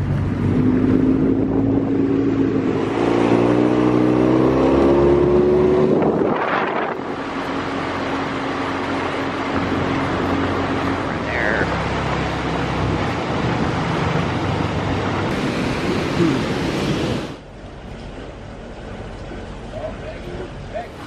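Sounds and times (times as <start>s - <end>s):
outboard motor revving: 0.0s - 17.5s.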